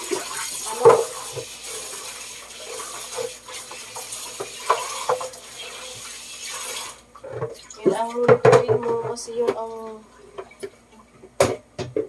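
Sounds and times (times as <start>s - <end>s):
tap water running into sink: 0.0s - 8.7s
dishes clattering against sink: 0.1s - 2.0s, 4.4s - 5.4s.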